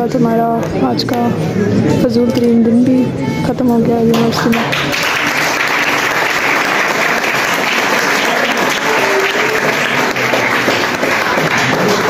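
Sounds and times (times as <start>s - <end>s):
small audience clapping: 4.1s - 12.0s.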